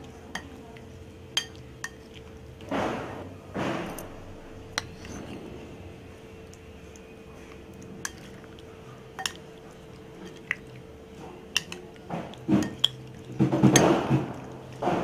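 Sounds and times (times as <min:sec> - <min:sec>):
wet squelching of mixing: 0:00.0 - 0:15.0.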